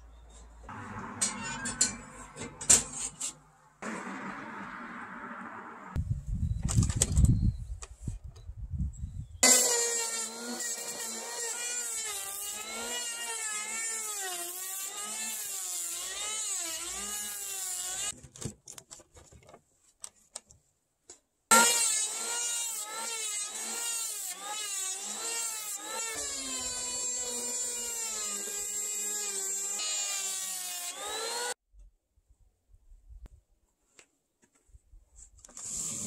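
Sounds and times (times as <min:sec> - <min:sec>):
electric hand planer whining: 0:09.4 - 0:18.1, 0:21.5 - 0:31.6.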